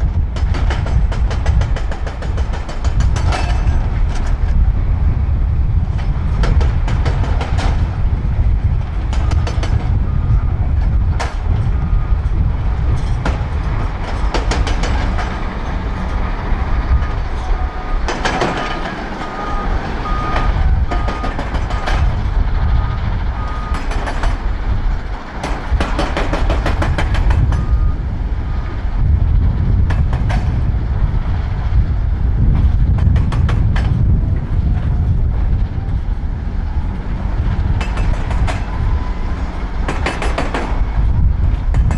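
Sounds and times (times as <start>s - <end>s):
diesel engine under load: 0.0s - 41.9s
reversing alarm beeps: 9.2s - 10.6s, 11.6s - 12.3s, 16.9s - 18.2s, 19.2s - 22.1s, 22.8s - 24.0s, 27.6s - 28.8s.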